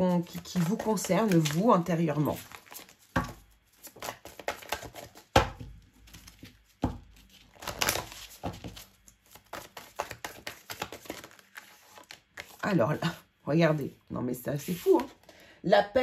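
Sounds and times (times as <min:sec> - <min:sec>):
cards shuffled by hand: 0:00.2 - 0:05.4, 0:06.0 - 0:12.8
cards slapping: 0:00.3 - 0:01.7, 0:02.4 - 0:12.6.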